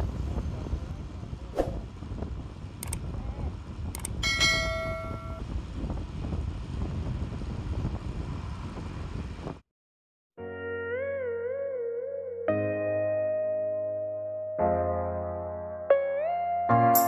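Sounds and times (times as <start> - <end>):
wind and scooter road rumble: 0.0 - 9.7.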